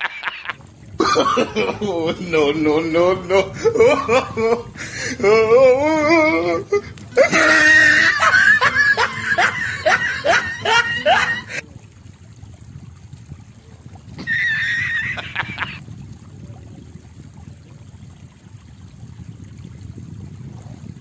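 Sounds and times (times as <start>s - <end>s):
high-pitched laughing: 0.0s - 11.6s, 14.2s - 15.8s.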